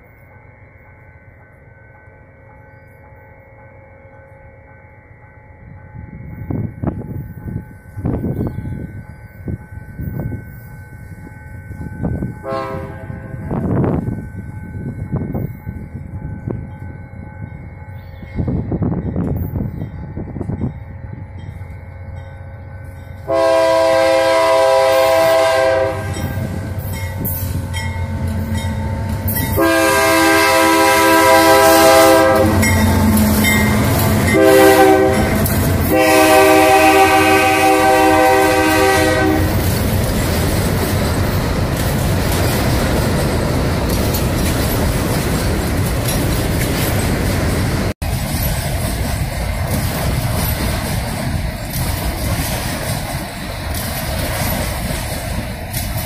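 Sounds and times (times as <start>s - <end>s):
freight wagons rumbling on rails: 4.1s - 56.0s
locomotive air horn blasts: 12.4s - 13.6s, 23.3s - 26.6s, 29.5s - 39.6s.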